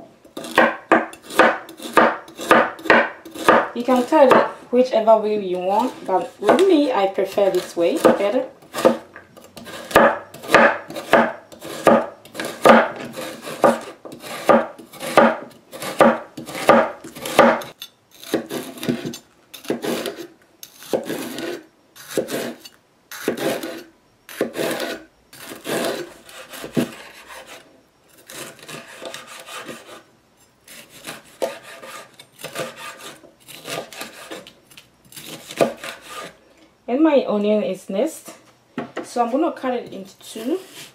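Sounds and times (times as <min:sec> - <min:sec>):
knife chopping on cutting board: 0:00.4 - 0:04.6, 0:07.5 - 0:09.0, 0:09.6 - 0:20.2.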